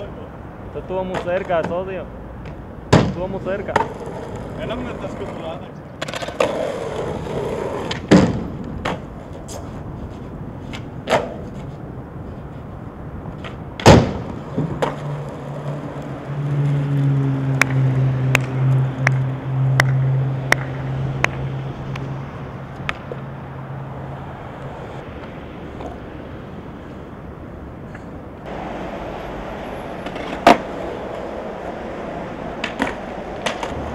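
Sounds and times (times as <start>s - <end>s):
skateboard clacking on pavement: 1.0s - 9.8s, 10.7s - 11.8s, 13.3s - 16.8s, 17.6s - 22.1s, 29.9s - 33.9s.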